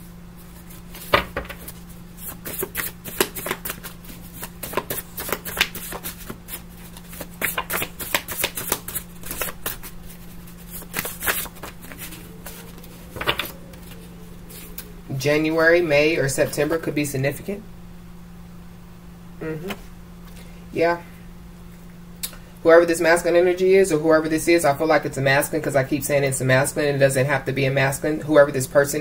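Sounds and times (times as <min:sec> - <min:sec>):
cards being shuffled: 0:00.4 - 0:14.9.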